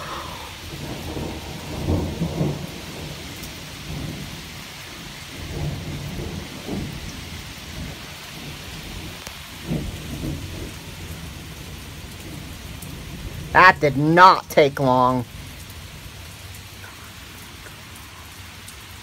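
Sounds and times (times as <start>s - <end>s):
rolling thunder: 0.0s - 13.6s
steady rain: 0.0s - 19.0s.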